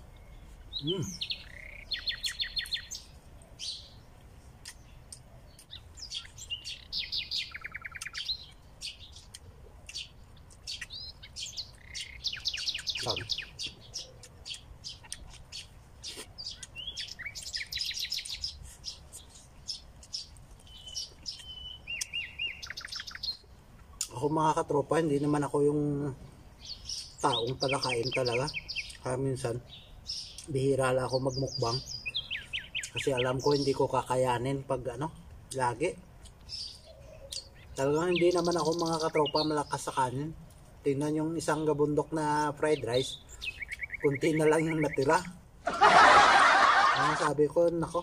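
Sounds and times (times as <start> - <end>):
bird trills: 0.0 - 4.0, 4.6 - 24.0, 26.6 - 29.1, 31.3 - 33.8, 42.8 - 47.3
small birds chirping: 0.0 - 48.0.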